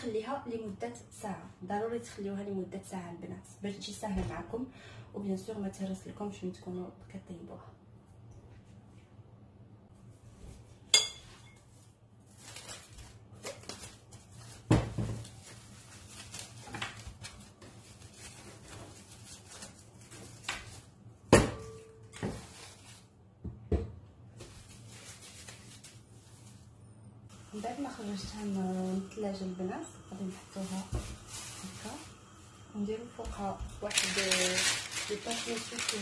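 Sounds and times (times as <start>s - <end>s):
glass bowl clinking on countertop: 10.9s - 11.6s
cling film rustling and crinkling: 11.6s - 21.1s, 22.1s - 23.2s, 24.3s - 29.4s, 30.1s - 36.0s.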